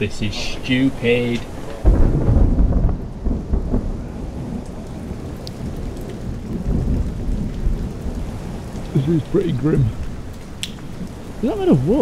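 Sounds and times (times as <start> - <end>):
steady rain: 0.0 - 12.0
low thunder: 1.8 - 11.2.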